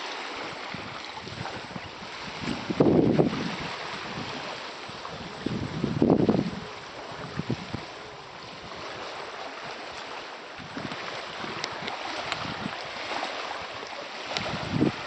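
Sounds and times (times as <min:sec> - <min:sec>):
small waves lapping: 0:00.0 - 0:15.0
wind blowing on microphone: 0:00.4 - 0:15.0.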